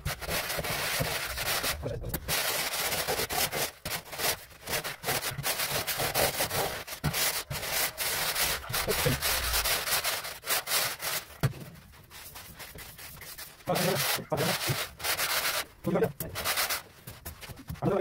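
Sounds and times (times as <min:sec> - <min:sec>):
straightedge scraping gritty floor: 0:00.0 - 0:11.4.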